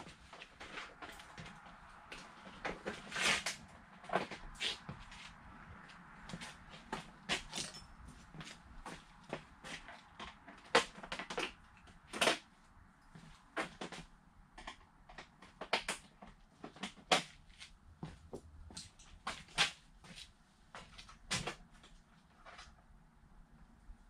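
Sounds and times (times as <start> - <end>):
tools clanking on metal parts: 7.4 - 8.0.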